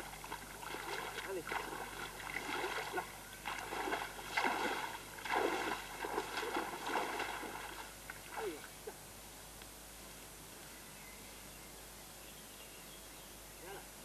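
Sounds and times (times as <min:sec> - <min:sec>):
wading through shallow water: 0:00.0 - 0:09.0
faint outdoor background: 0:00.0 - 0:14.0.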